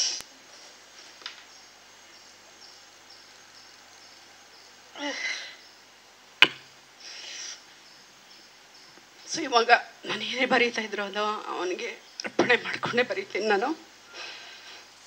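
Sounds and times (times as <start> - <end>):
sniff: 7.0 - 7.6.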